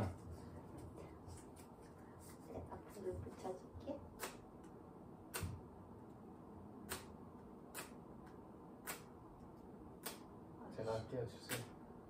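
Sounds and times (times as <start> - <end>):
sharp clicks: 8.8 - 9.1.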